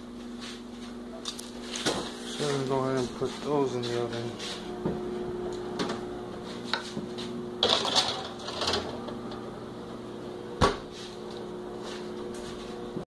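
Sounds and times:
steady hum: 0:00.0 - 0:13.0
metal baking trays clattering: 0:07.6 - 0:08.9
oven door shutting thud: 0:10.6 - 0:10.9.

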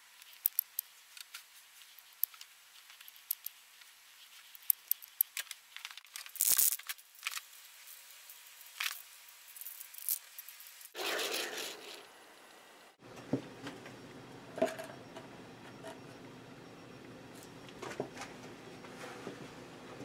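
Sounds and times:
small clicks and taps: 0:02.0 - 0:03.6.

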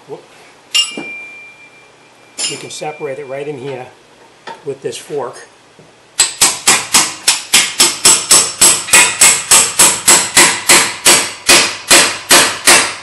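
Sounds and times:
hammer striking metal: 0:00.7 - 0:01.6, 0:02.4 - 0:03.0, 0:06.2 - 0:13.0.

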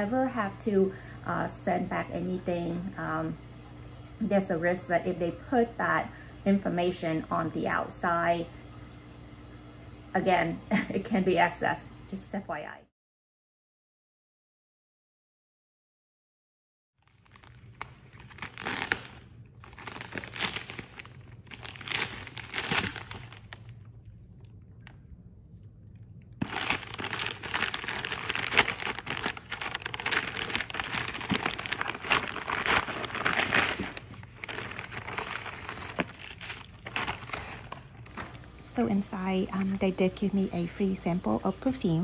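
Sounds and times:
paper packaging crinkling: 0:17.0 - 0:23.9, 0:26.4 - 0:40.3.

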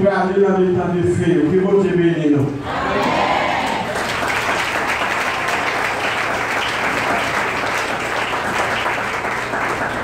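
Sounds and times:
crowd clapping: 0:03.6 - 0:10.0.

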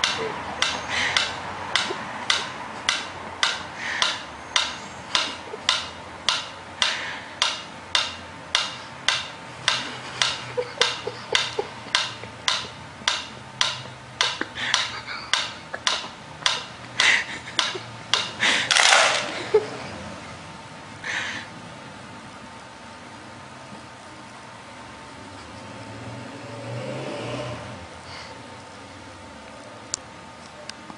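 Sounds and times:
metronome ticking: 0:00.0 - 0:18.4
metronome clattering over: 0:00.0 - 0:19.7.

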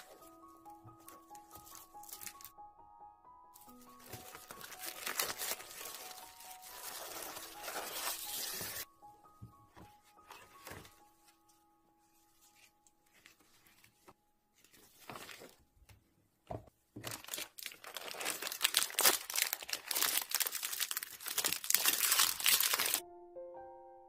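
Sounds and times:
wrapper crinkling: 0:00.0 - 0:02.5, 0:03.6 - 0:08.9, 0:17.0 - 0:23.0
soft music notes: 0:00.0 - 0:15.6, 0:23.0 - 0:24.0.

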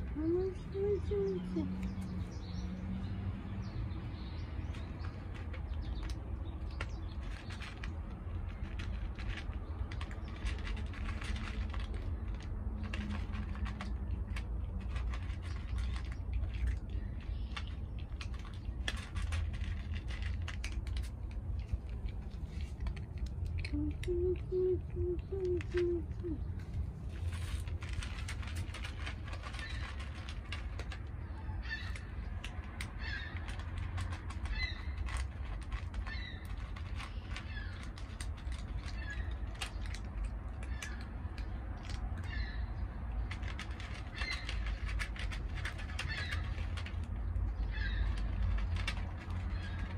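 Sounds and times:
cat crunching dry kibble: 0:02.9 - 0:49.9
bird calling: 0:23.7 - 0:26.5.

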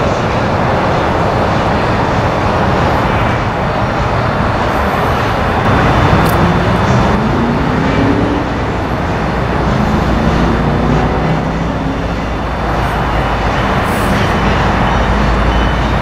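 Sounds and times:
road traffic noise: 0:00.0 - 0:16.0
low hum rising in pitch: 0:05.6 - 0:13.4.

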